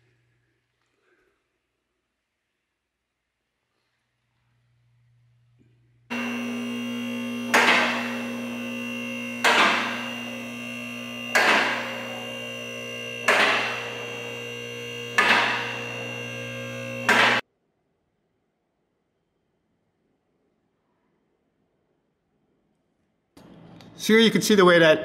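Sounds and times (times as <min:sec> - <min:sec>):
hydraulic pump motor humming: 0:06.1 - 0:17.4.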